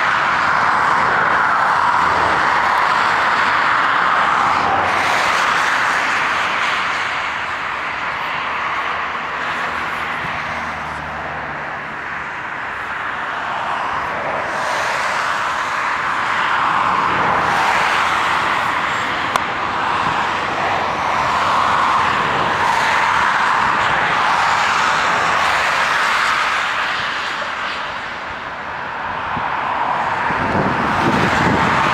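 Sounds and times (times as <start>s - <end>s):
jet engines rushing hiss: 0.0s - 31.9s.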